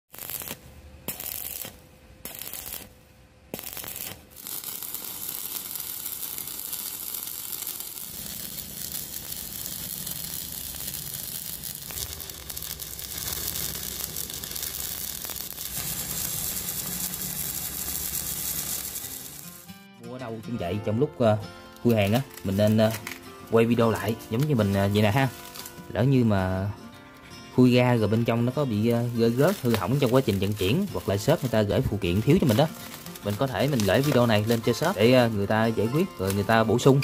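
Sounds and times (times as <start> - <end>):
tape and plastic wrapping tearing: 0.1 - 2.9, 3.5 - 19.7, 21.7 - 26.0, 28.2 - 37.0.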